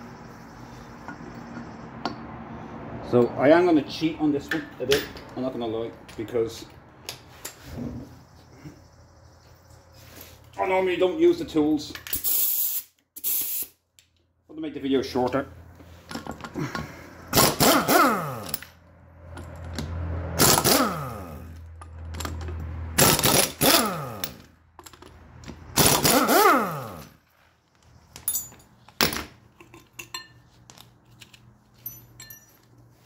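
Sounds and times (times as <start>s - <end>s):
pneumatic impact wrench bursts: 12.1s - 13.8s, 17.3s - 18.6s, 20.4s - 21.5s, 23.0s - 24.5s, 25.7s - 27.2s.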